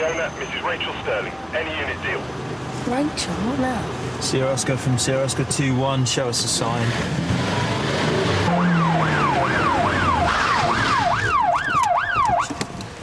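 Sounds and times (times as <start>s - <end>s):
car engine: 0.0s - 13.0s
police siren yelping: 8.5s - 12.6s.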